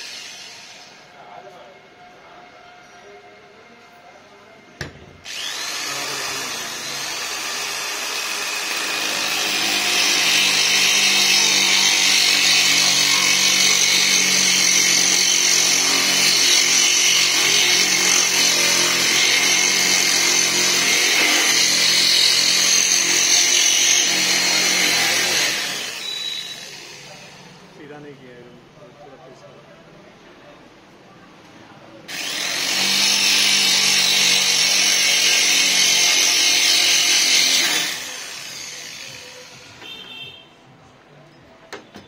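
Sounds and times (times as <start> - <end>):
electric drill grinding whine: 0.0 - 1.1, 5.2 - 27.4, 32.1 - 39.7
drill click: 4.8 - 24.0.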